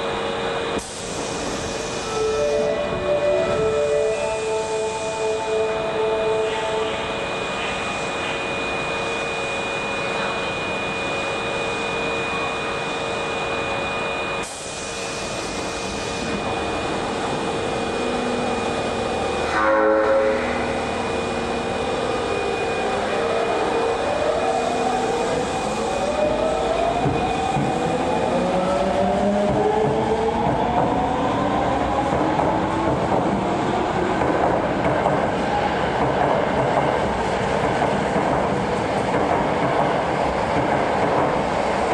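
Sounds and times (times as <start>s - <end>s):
train equipment hum: 0.0s - 41.9s
train horn blast: 19.4s - 21.0s.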